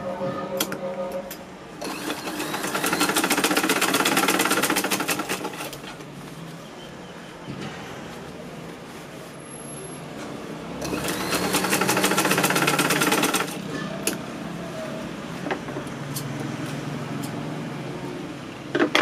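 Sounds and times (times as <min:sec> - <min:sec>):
sewing machine stitching: 0:01.8 - 0:06.0, 0:10.8 - 0:13.6.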